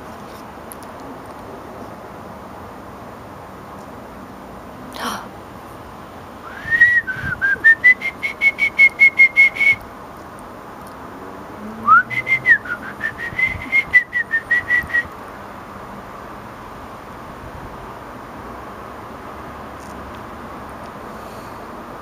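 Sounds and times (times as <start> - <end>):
person whistling trills: 6.5 - 9.8, 11.9 - 15.1.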